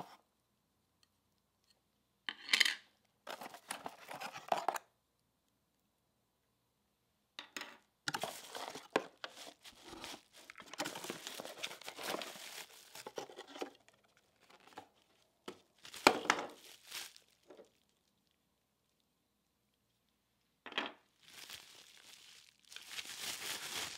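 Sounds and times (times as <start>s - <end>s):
bubble wrap crinkling: 8.1s - 18.4s, 21.2s - 23.9s.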